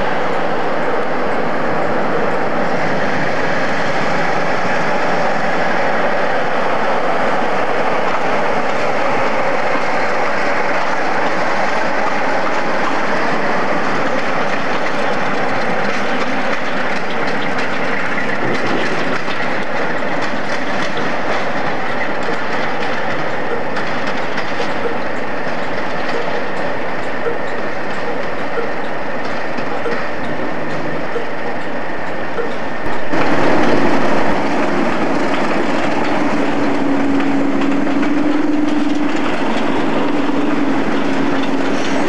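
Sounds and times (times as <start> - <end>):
diesel locomotive engine running: 0.0 - 42.0
wheels clicking over rail joints: 0.0 - 42.0.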